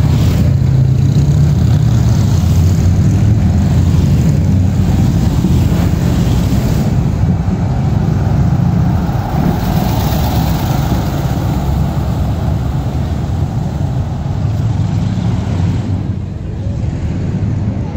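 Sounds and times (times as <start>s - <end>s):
truck driving past: 0.0s - 16.4s
motorcycle riding by: 3.7s - 16.1s.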